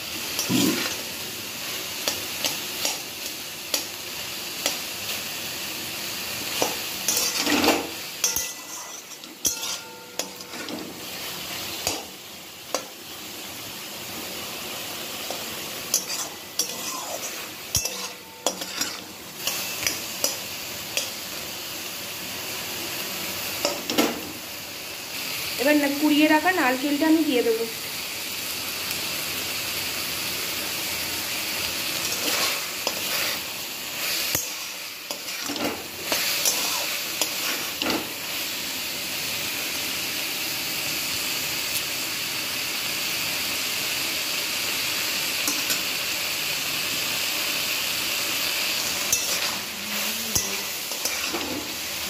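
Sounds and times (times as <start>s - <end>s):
vegetables sizzling: 0.0s - 52.0s
metal spatula scraping pan: 6.6s - 11.1s, 15.9s - 20.4s, 32.0s - 38.1s, 48.8s - 51.8s.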